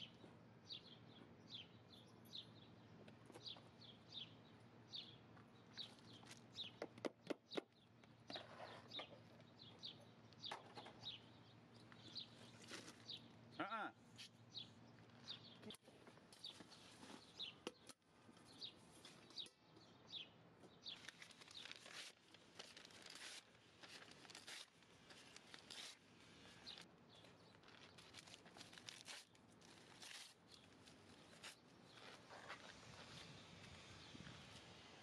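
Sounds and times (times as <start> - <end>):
small birds chirping: 0.0 - 22.0
paper tearing and rustling: 20.9 - 26.8, 27.6 - 33.2.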